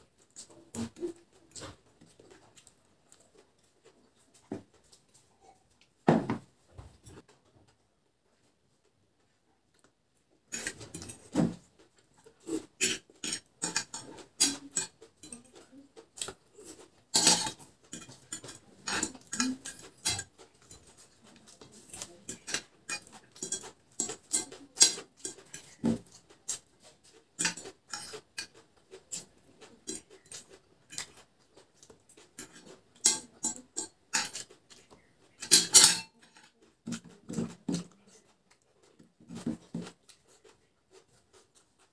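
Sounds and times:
chewing noodles: 0.1s - 5.9s, 9.6s - 41.9s
fork scraping a plate: 10.5s - 11.5s, 12.2s - 38.3s.

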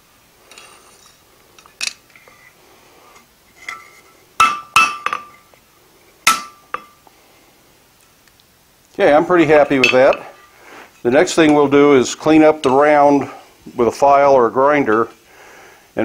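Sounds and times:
hammer striking steel on anvil: 4.4s - 5.4s, 6.3s - 7.0s.

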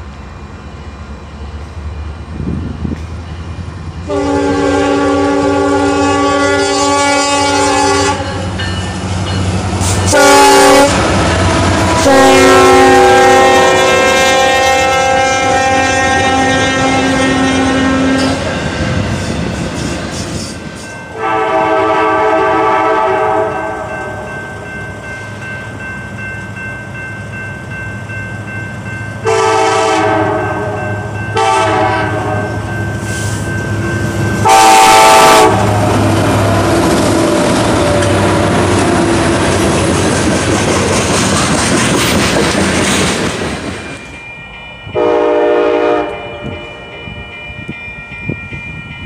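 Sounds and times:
locomotive rumbling past: 0.0s - 49.0s
locomotive horn blasts: 4.1s - 8.5s, 10.0s - 18.5s, 21.1s - 24.3s, 29.2s - 32.7s, 34.4s - 38.4s, 45.0s - 47.0s.

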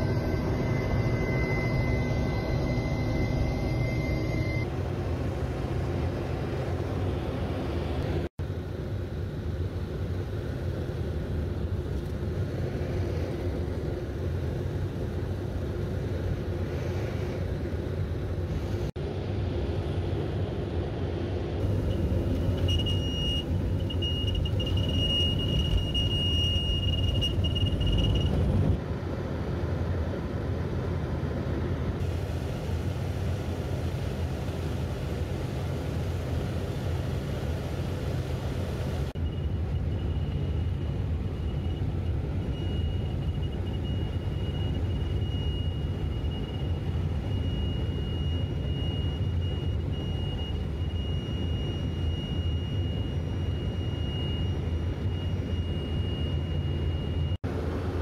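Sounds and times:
steady high tone: 0.0s - 4.7s
airplane engine drone: 0.0s - 58.0s.

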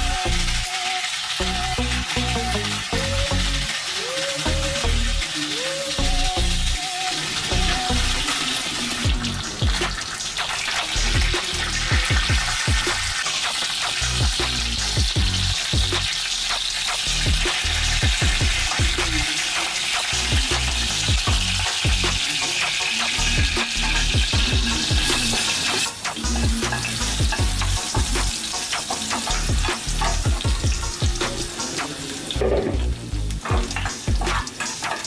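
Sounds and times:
fish sizzling in oil: 0.0s - 35.0s
metal tongs scraping pan: 33.5s - 35.0s.

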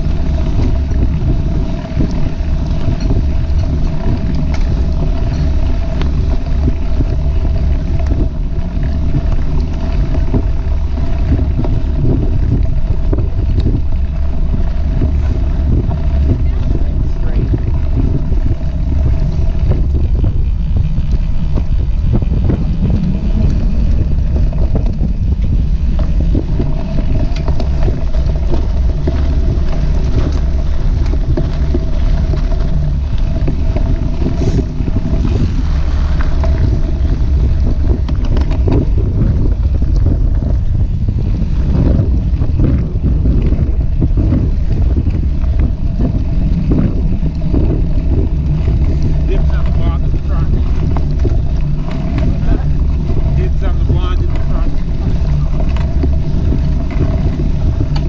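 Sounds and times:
bike knocks and rattles: 0.0s - 58.0s
tyre rumble on dirt trail: 0.0s - 58.0s
wind rushing over microphone: 0.0s - 58.0s.

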